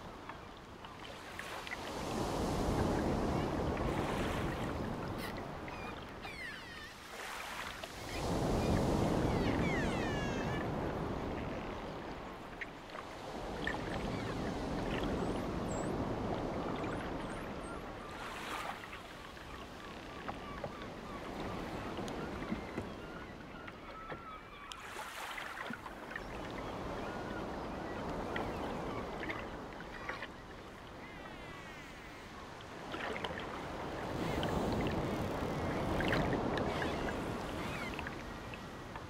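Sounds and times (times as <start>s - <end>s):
ocean surf breaking on beach: 1.3s - 6.2s, 7.0s - 17.3s, 32.7s - 39.0s
faint high gliding calls: 5.6s - 7.2s, 9.2s - 10.8s.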